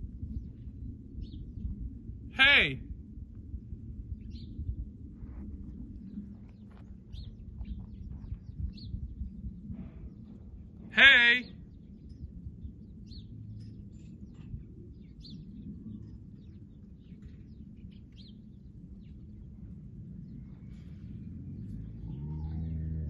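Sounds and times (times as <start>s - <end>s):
small birds chirping: 4.2s - 4.8s, 5.8s - 23.0s.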